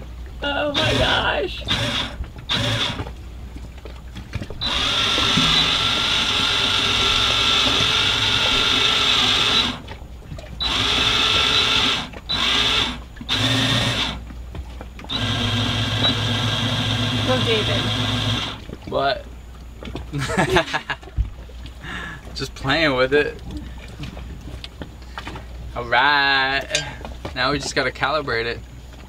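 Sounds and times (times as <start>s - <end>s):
electric motor whining: 0.7s - 3.1s, 4.6s - 9.8s, 10.6s - 14.2s, 15.1s - 18.6s.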